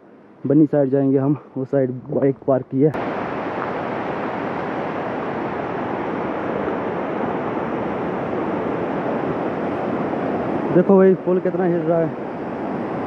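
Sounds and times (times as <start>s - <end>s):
river rushing: 2.9s - 13.0s.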